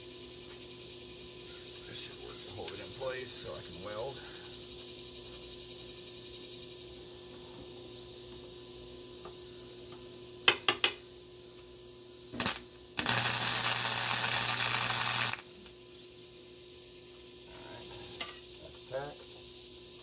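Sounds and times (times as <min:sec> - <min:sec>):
continuous welding arc: 0:01.9 - 0:05.6, 0:12.2 - 0:15.8, 0:17.1 - 0:20.0
welder arc strikes: 0:12.4 - 0:15.6.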